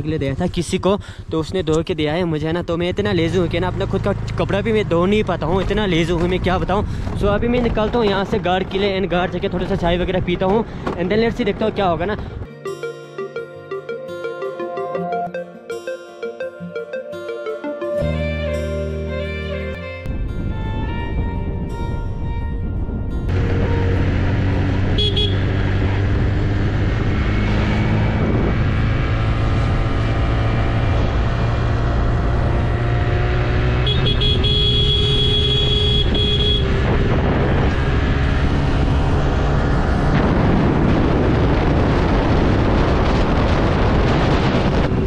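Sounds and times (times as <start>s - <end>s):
high steady tone: 12.5s - 19.2s
wind rumble on microphone: 20.1s - 33.8s, 36.0s - 45.0s
scooter engine running: 23.3s - 27.3s, 28.2s - 39.8s.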